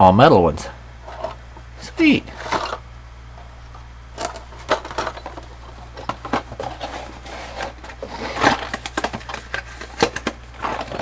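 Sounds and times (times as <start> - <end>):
plastic packaging crinkling: 4.1 - 11.0.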